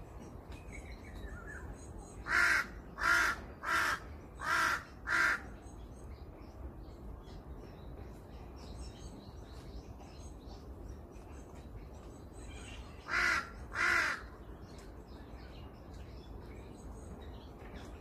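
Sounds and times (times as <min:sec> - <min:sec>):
crow cawing: 0:02.3 - 0:05.4, 0:13.1 - 0:14.3.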